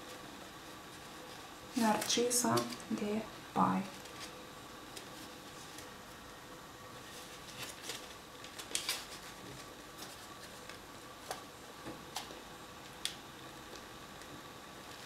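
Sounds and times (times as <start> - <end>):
faint steady hum: 0.0 - 15.0
paper crinkling: 3.6 - 6.4, 7.0 - 15.0.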